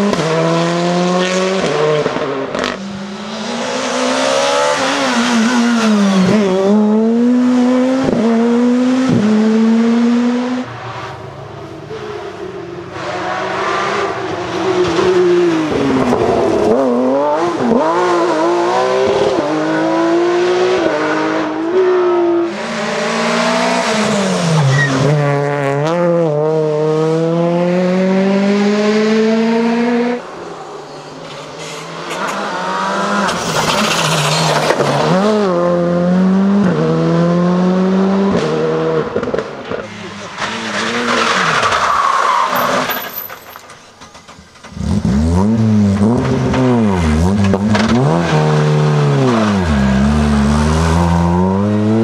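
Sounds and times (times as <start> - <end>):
rally car engines revving: 0.0 - 43.5, 44.2 - 52.0.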